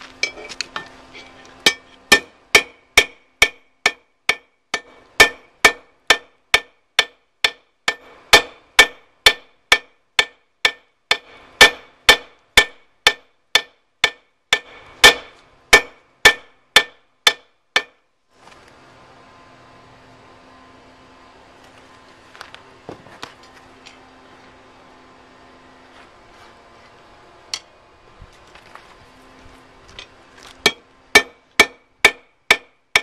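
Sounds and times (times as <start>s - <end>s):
hammer ringing on anvil: 1.6s - 18.0s.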